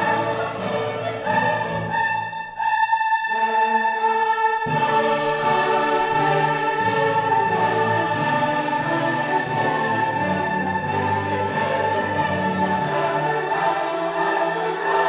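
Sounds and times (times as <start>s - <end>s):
choir holding long notes: 0.0s - 15.0s
orchestra playing: 0.0s - 15.0s.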